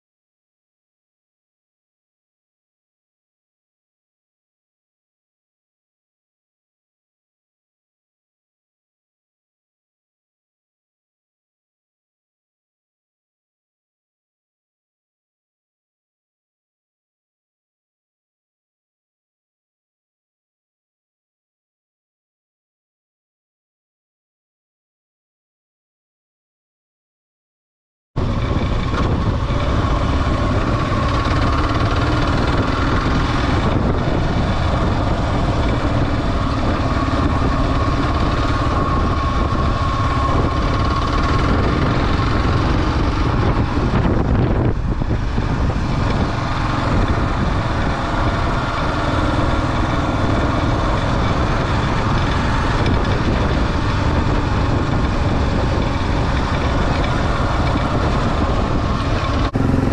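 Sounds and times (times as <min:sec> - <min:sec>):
motorcycle engine running: 0:28.2 - 0:59.9
road noise: 0:28.2 - 0:59.9
wind noise: 0:28.2 - 0:59.9.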